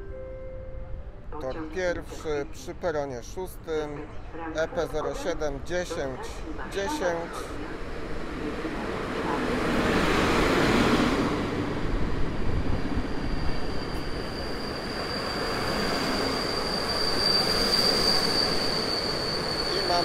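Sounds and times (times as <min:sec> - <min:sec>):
passenger train rumbling past: 0:00.0 - 0:20.0
high wheel squeal: 0:13.1 - 0:20.0.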